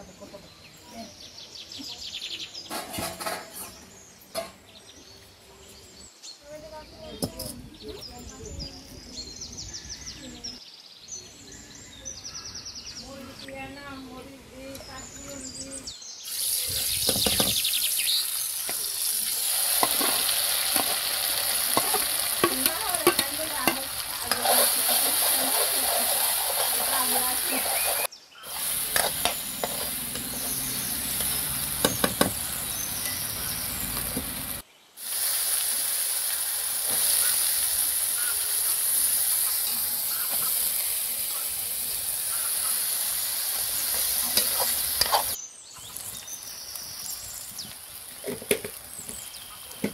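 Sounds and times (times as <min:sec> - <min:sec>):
food sizzling in oil: 0:16.2 - 0:49.9
spoon scraping a metal pan: 0:21.7 - 0:32.4, 0:43.9 - 0:45.4.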